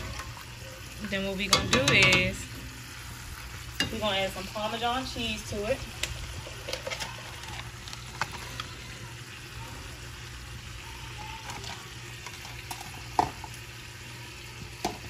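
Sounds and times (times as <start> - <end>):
cream sauce sizzling in a pan: 0.0 - 15.0.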